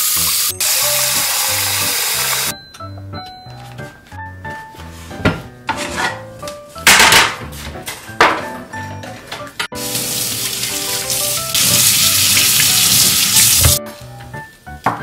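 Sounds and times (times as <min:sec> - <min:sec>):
tap water running into sink: 0:00.0 - 0:02.5, 0:09.8 - 0:13.8
soft background music: 0:00.1 - 0:15.0.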